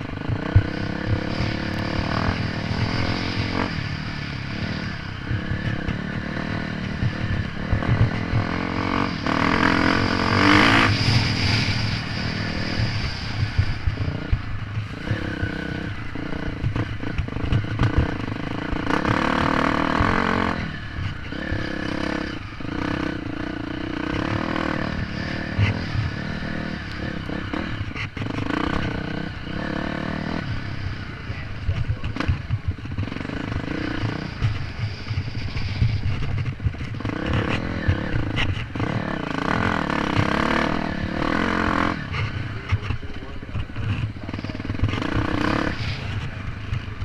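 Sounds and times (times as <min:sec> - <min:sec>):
dirt bike engine revving: 0:00.0 - 0:47.0.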